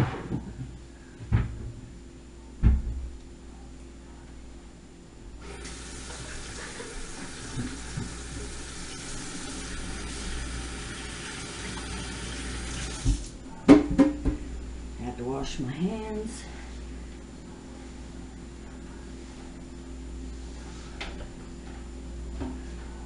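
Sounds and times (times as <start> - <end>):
tap running into sink: 7.3 - 8.5, 11.6 - 13.3.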